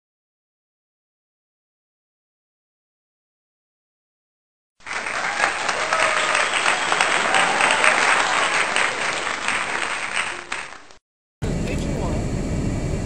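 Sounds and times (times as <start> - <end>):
crowd applause: 4.8 - 11.0.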